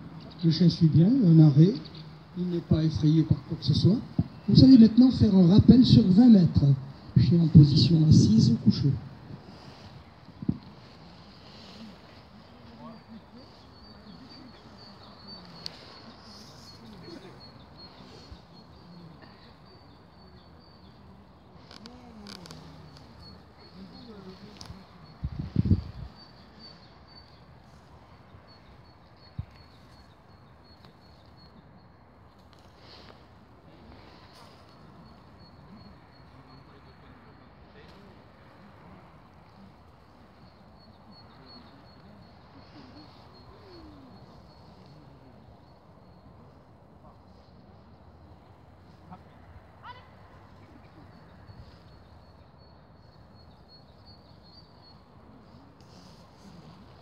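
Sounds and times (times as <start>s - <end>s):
faint high-pitched chirps: 6.9s - 57.0s
wind rumble on microphone: 7.2s - 11.1s, 24.6s - 26.3s.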